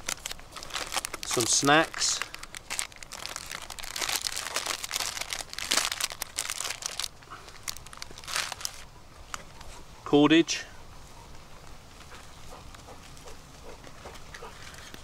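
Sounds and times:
plastic wrappers crinkling: 0:00.0 - 0:09.5.

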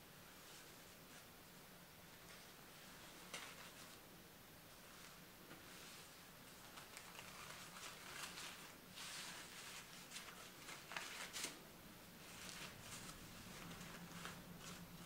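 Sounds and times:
paper napkin rustling: 0:04.8 - 0:11.6, 0:12.2 - 0:15.0.

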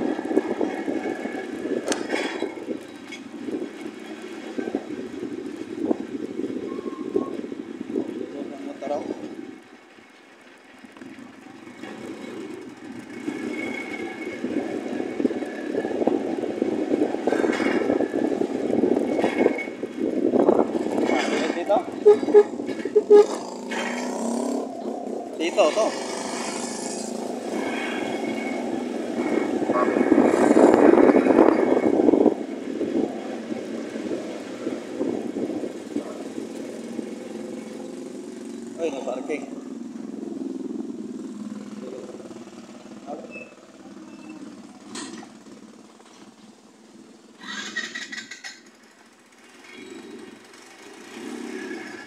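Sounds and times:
wind buffeting microphone: 0:00.0 - 0:09.8, 0:11.8 - 0:43.0
vehicle engine and road noise: 0:00.0 - 0:52.0.

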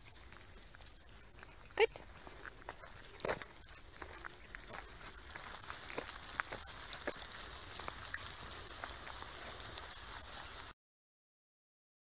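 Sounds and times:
footsteps on gravel: 0:00.0 - 0:10.7
steady hiss: 0:03.8 - 0:10.7.

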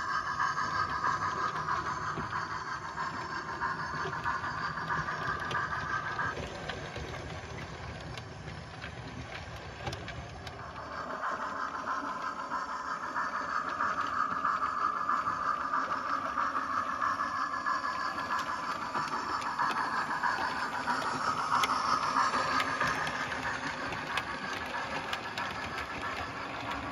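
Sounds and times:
model trains running on track: 0:00.0 - 0:26.9.

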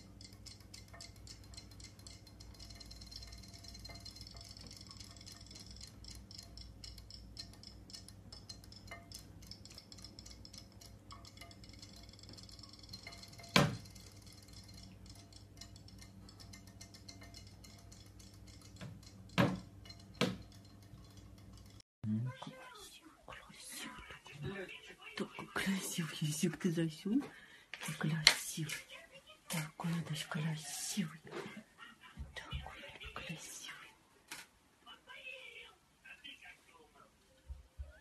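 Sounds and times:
light ticking on glass bowl: 0:00.0 - 0:21.8
low steady hum: 0:00.0 - 0:34.8.

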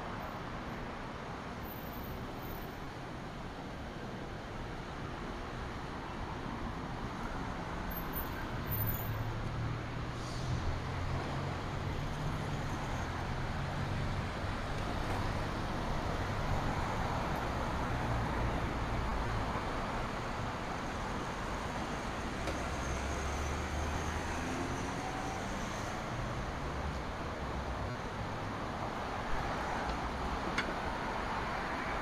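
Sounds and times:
vehicles driving past: 0:06.6 - 0:32.0.

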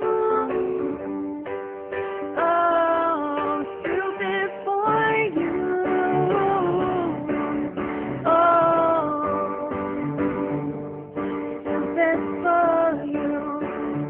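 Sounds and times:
woman singing pop ballad: 0:00.0 - 0:01.6, 0:02.3 - 0:10.4, 0:11.7 - 0:14.0
piano and guitar accompaniment: 0:00.0 - 0:14.0.

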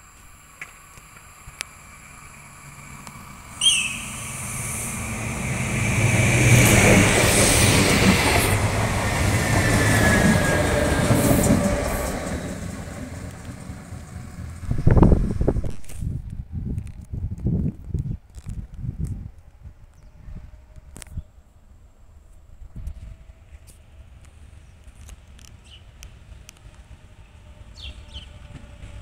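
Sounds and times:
falling whine: 0:00.0 - 0:15.8
train passing with rumble and hiss: 0:00.0 - 0:17.3, 0:18.5 - 0:29.0
short sharp high note: 0:03.6 - 0:05.1.

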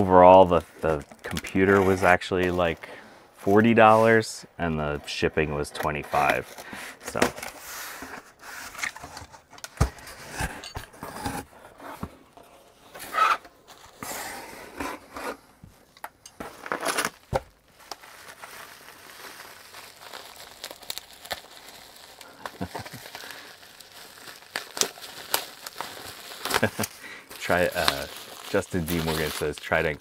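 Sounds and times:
cardboard and tape tearing: 0:12.9 - 0:15.4, 0:16.4 - 0:30.0
bubble wrap crinkling: 0:16.4 - 0:30.0.

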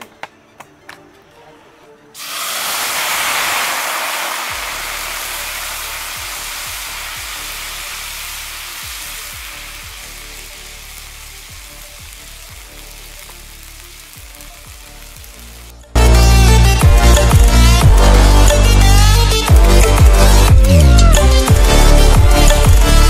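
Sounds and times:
faint background music: 0:00.0 - 0:03.1, 0:04.6 - 0:23.0
oil sizzling and spattering: 0:02.2 - 0:16.0.

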